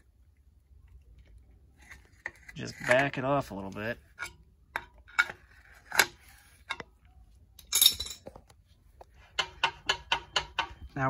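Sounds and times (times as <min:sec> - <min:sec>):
metal clatter: 0:07.6 - 0:08.4.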